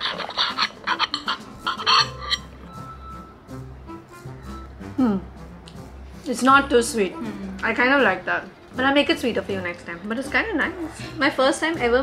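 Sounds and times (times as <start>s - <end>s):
knife and fork clinking on plate: 0.0s - 2.5s
background music with held notes: 0.0s - 12.0s.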